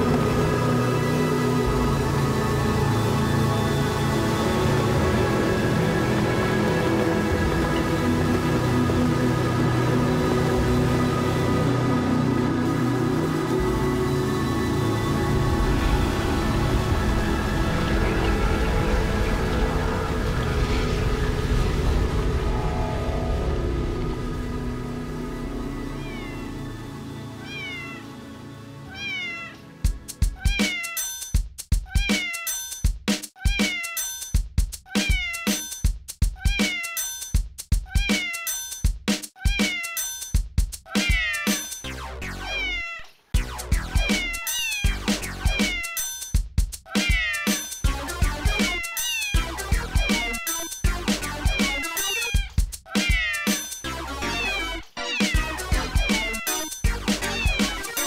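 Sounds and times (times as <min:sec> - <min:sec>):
sustained electronic tone: 0:00.0 - 0:28.8
looped cat meows: 0:26.0 - 0:26.5, 0:27.4 - 0:28.1, 0:28.8 - 0:29.6, 0:30.3 - 0:31.0, 0:31.9 - 0:32.6, 0:33.4 - 0:34.1, 0:34.9 - 0:35.6, 0:36.4 - 0:37.1, 0:37.9 - 0:38.6, 0:39.4 - 0:40.1, 0:40.9 - 0:41.6, 0:42.4 - 0:43.1, 0:44.4 - 0:46.1, 0:46.9 - 0:47.6, 0:48.8 - 0:50.7, 0:51.5 - 0:53.6, 0:54.3 - 0:58.0
electronic beat: 0:29.8 - 0:42.8, 0:43.4 - 0:58.0.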